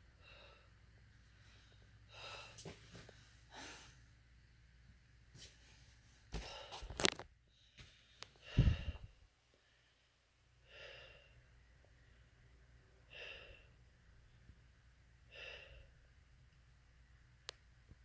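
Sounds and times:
person breathing heavily: 0.2 - 4.1, 6.3 - 12.4, 13.0 - 13.8, 15.3 - 16.0.

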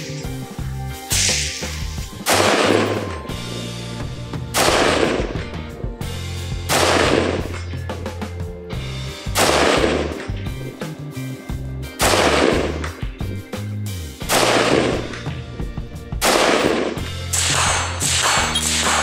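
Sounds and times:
background music with bass line: 0.0 - 19.0
rifle shots: 2.2 - 3.3, 4.5 - 5.5, 6.7 - 7.6, 9.4 - 10.4, 12.0 - 13.0, 14.2 - 15.3, 16.2 - 19.0.

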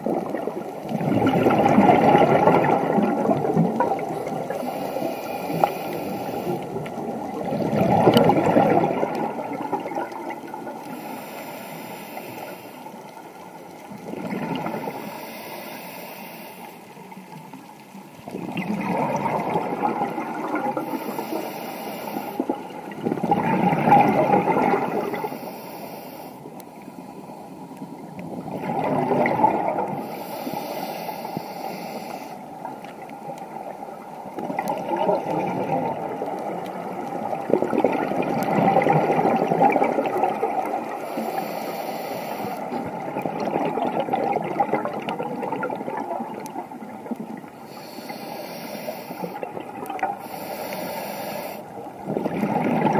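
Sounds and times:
exhaled bubbles underwater: 0.0 - 11.6, 12.2 - 15.4, 16.8 - 25.6, 26.4 - 52.9
regulator inhale hiss: 4.5 - 6.8, 10.8 - 13.4, 14.6 - 17.5, 20.8 - 22.6, 24.9 - 27.6, 29.9 - 32.7, 40.8 - 42.8, 47.6 - 49.5, 50.1 - 51.8.

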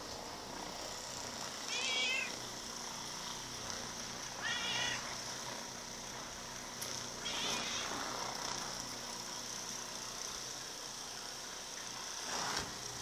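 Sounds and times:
massager motor running: 0.0 - 13.0
cat meowing: 1.7 - 2.4, 4.4 - 5.1, 7.2 - 7.9.

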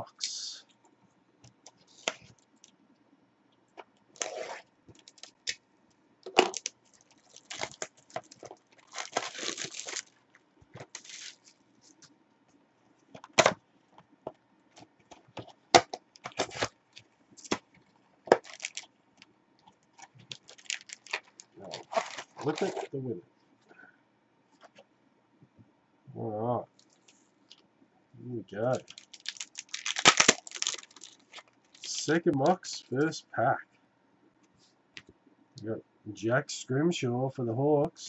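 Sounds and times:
wrapper and cardboard tearing: 4.2 - 5.6, 6.3 - 10.2, 10.8 - 11.6, 15.8 - 16.8, 18.3 - 18.9, 20.0 - 22.9, 28.7 - 32.0.

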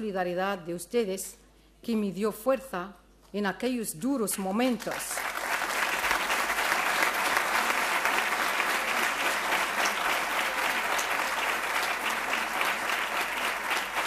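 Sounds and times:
audience applauding: 4.9 - 14.0.

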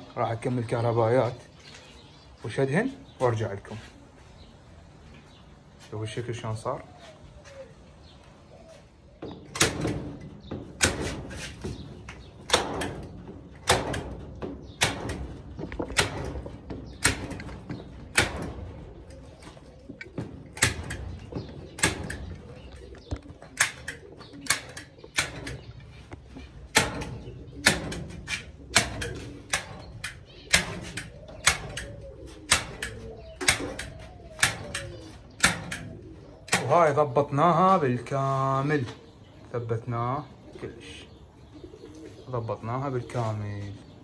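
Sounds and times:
hammer striking nails: 12.5 - 14.2, 18.1 - 18.5.

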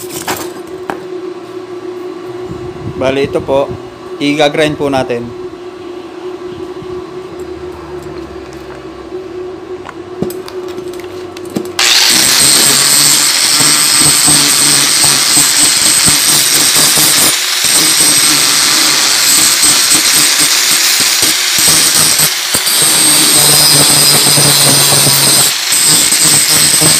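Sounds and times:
steady hum: 0.0 - 26.9
angle grinder grinding steel: 11.8 - 26.9.

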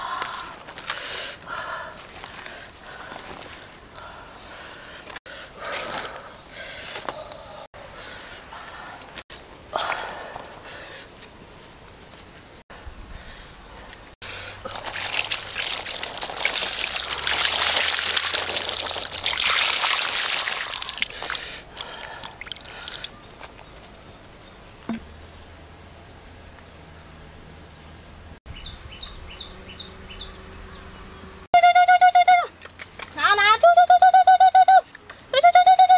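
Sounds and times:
water splashing onto food: 14.7 - 23.6.

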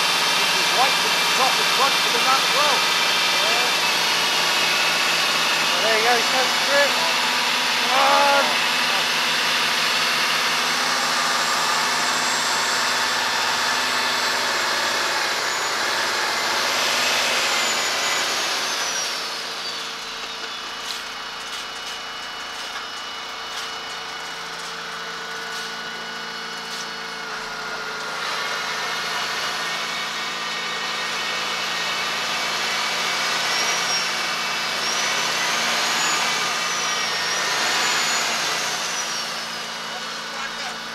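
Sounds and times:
diesel engines running hard: 0.0 - 40.9
high whine: 1.3 - 21.6.

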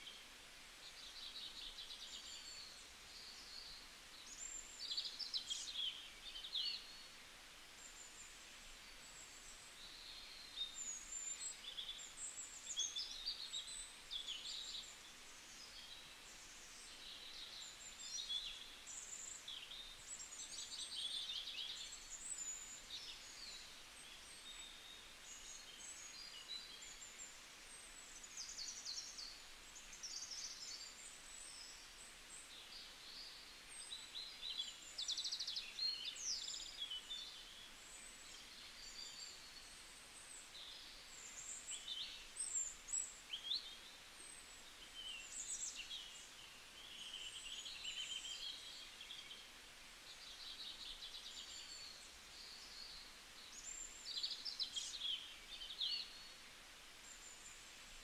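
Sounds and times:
faint steady hiss: 0.0 - 58.0.

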